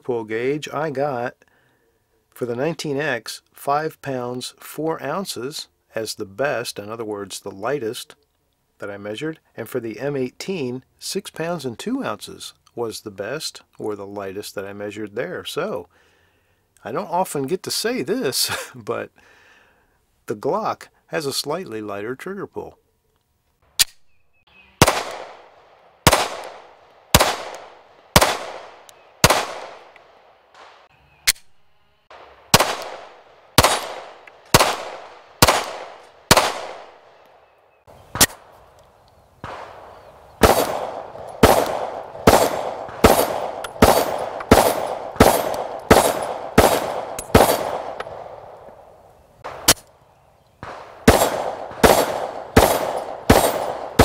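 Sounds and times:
pistol shots: 24.8s - 31.5s, 32.1s - 37.2s, 38.1s - 38.5s, 39.4s - 48.8s, 49.4s - 49.9s, 50.6s - 54.0s.

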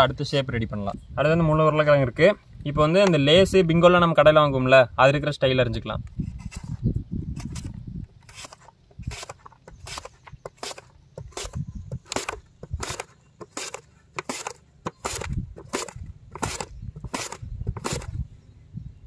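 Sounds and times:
potato rasping on slicer blade: 8.3s - 18.1s.

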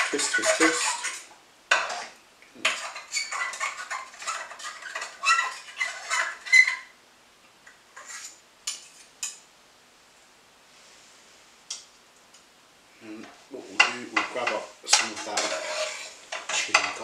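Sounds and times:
metal utensils clinking on pan: 13.8s - 17.0s.

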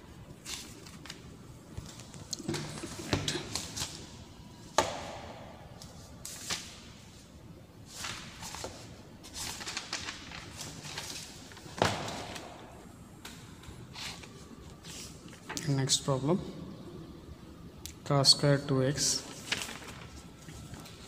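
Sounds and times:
notebook pages rustling: 0.4s - 4.1s, 7.9s - 12.6s, 13.9s - 15.5s, 19.2s - 21.0s
sharp paper slaps: 4.7s - 6.9s, 9.4s - 12.6s.

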